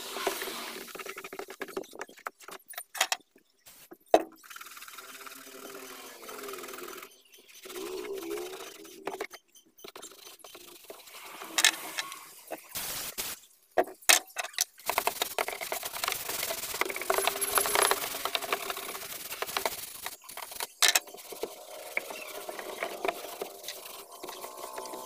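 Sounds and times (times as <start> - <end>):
brush scrubbing plastic trim: 14.8 - 25.0.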